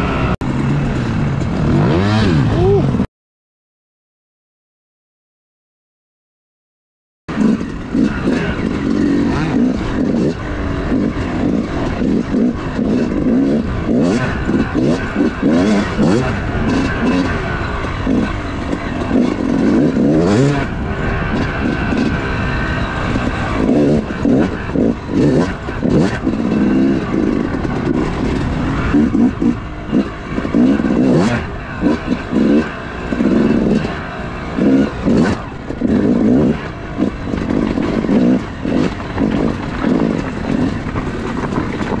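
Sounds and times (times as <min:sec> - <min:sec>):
dirt bike engine revving: 0:00.0 - 0:03.1, 0:07.3 - 0:42.0.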